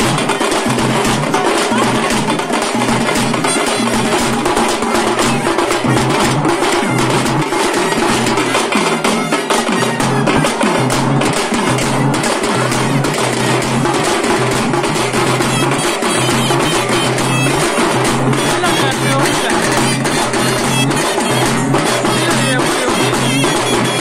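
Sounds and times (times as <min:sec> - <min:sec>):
fast loud drumming: 0:00.0 - 0:24.0.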